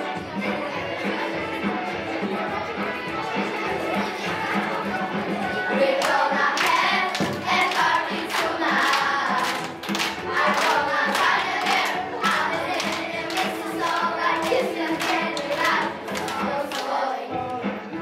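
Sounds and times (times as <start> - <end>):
children's choir singing: 0.0 - 18.0
music with steady beat: 0.0 - 18.0
children clapping: 5.9 - 17.1.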